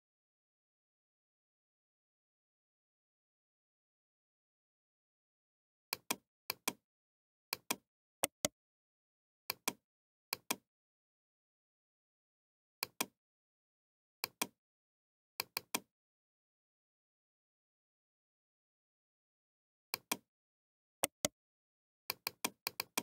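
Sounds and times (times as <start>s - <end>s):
mouse buttons clicking: 7.6s - 8.5s, 21.0s - 21.3s.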